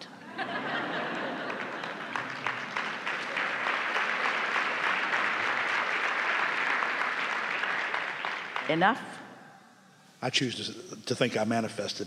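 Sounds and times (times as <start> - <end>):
audience clapping: 0.0 - 9.2.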